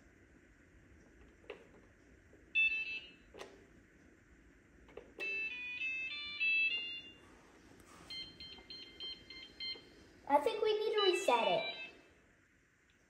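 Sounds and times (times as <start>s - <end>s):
tune of stepping beeps: 8.0s - 9.9s.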